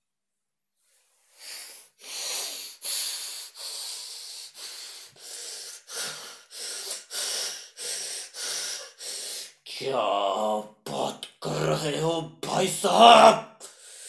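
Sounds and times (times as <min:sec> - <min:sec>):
man breathing hard: 0:01.2 - 0:09.7, 0:13.6 - 0:14.0.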